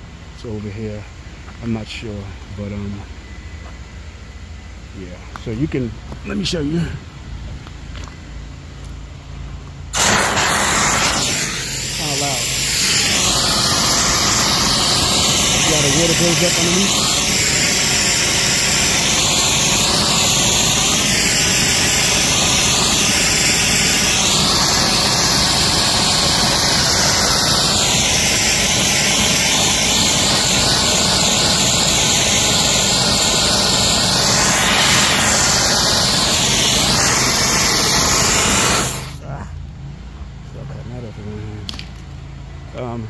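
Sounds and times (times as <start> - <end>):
pressure washer spray hiss: 10.0 - 39.2.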